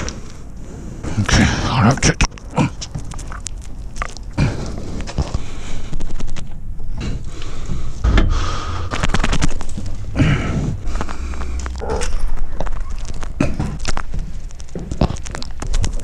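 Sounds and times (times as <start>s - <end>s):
person clambering through hatch: 4.4s - 16.0s.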